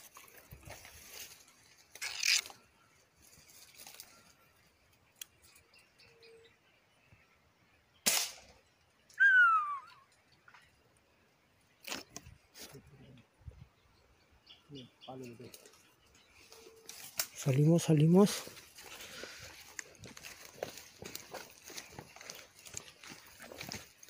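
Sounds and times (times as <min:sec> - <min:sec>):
air rifle shot crack: 0:08.0 - 0:08.5
falling whistle: 0:09.2 - 0:10.1.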